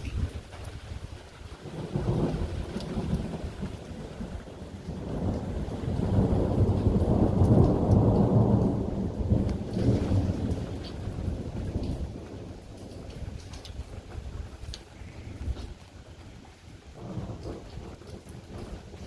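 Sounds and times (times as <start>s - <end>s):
falling rain: 0.0s - 19.0s
raindrop ticks: 0.0s - 19.0s
rolling thunder: 0.0s - 19.0s.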